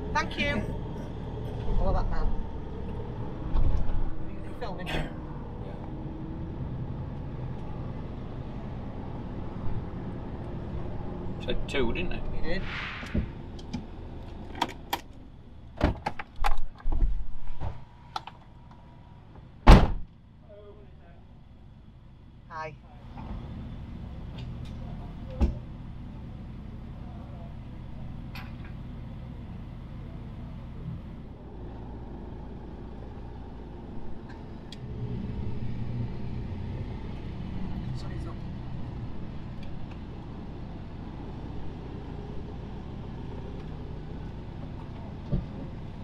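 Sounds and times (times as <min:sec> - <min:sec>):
engine droning: 0:00.0 - 0:46.0
clicks and knocks in vehicle cab: 0:15.8 - 0:18.4.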